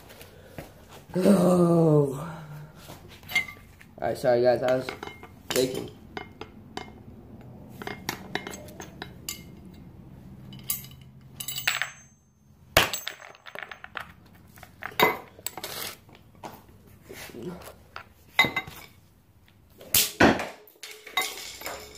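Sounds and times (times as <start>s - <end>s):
metal parts clinking and knocking: 4.7s - 7.0s, 7.8s - 15.6s, 20.6s - 21.9s.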